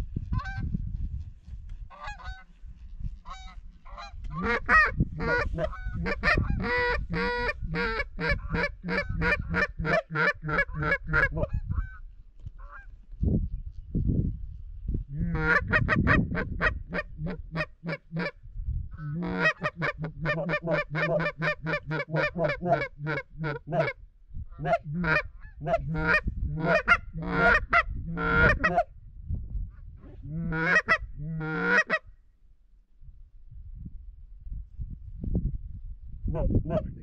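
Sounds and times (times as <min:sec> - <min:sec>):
goose honking and clucking: 0:01.9 - 0:02.5, 0:03.2 - 0:12.0, 0:12.6 - 0:12.9, 0:15.1 - 0:18.4, 0:19.0 - 0:28.9, 0:30.1 - 0:32.0.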